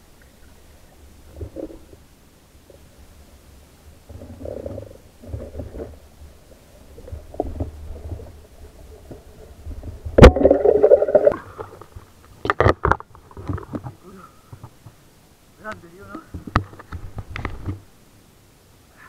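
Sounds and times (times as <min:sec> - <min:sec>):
muffled underwater rumble: 0:00.0 - 0:12.2
bubbling: 0:04.0 - 0:13.7.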